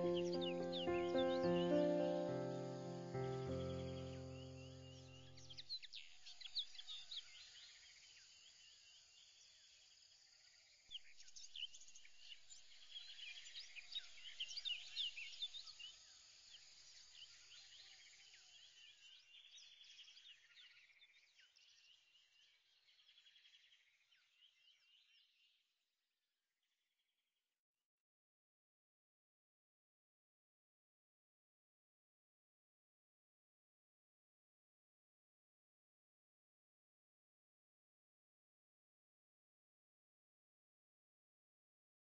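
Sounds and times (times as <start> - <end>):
small birds chirping: 0.0 - 9.8, 11.0 - 25.6.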